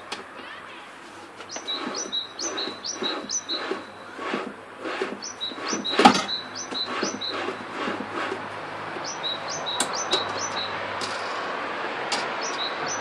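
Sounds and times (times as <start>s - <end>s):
wood rubbing on wood: 1.0s - 10.6s
wooden drill press squeaking: 1.4s - 10.8s.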